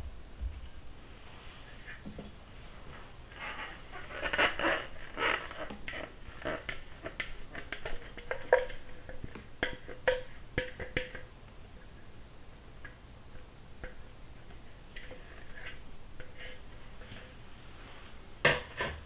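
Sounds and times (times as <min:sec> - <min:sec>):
utensil scraping a mixing bowl: 0:03.3 - 0:10.0, 0:15.0 - 0:17.4.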